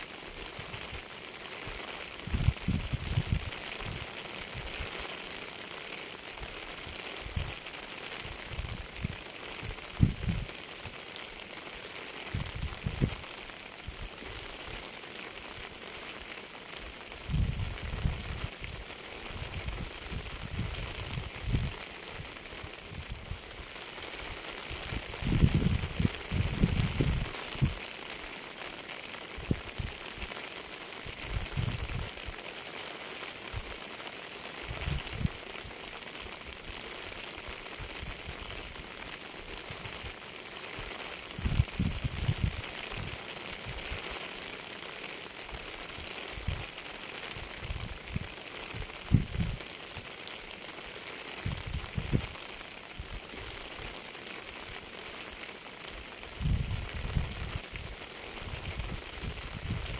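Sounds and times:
rain hiss: 0.0 - 59.9.

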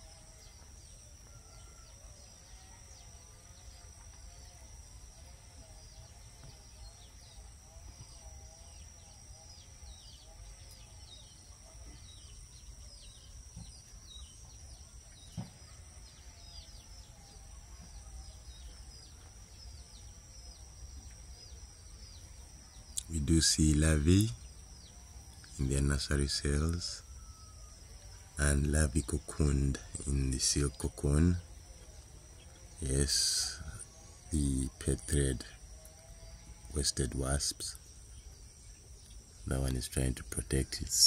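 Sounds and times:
faint wavering hum: 0.0 - 41.0
steady high-pitched whine: 0.0 - 41.0
baby chicks peeping: 32.4 - 41.0.

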